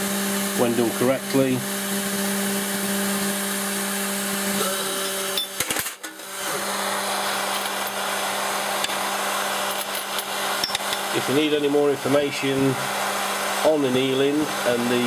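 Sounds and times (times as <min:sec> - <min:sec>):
gas torch flames hissing: 0:06.4 - 0:15.0.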